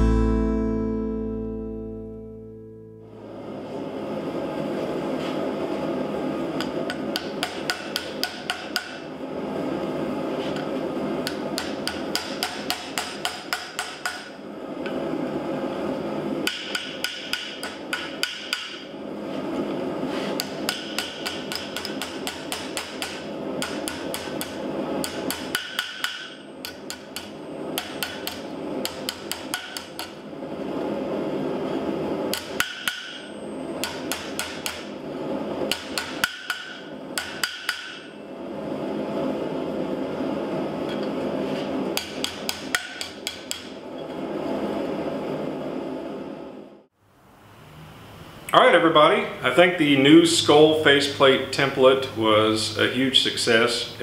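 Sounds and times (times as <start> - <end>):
hammer striking hot steel: 6.6 - 9.1, 10.6 - 14.4, 16.4 - 18.9, 20.4 - 30.2, 32.3 - 35.0, 35.6 - 38.2, 41.9 - 43.8.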